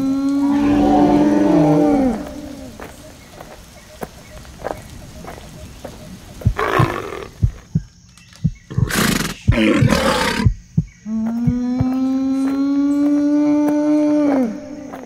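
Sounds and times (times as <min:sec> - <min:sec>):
long steady-pitched cry: 0:00.0 - 0:02.8
harsh creature roar: 0:00.1 - 0:02.8.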